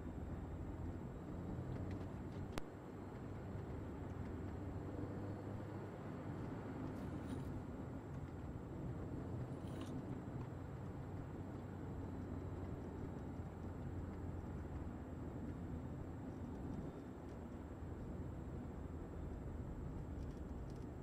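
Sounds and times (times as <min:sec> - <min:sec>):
car engine drone: 0:00.0 - 0:21.0.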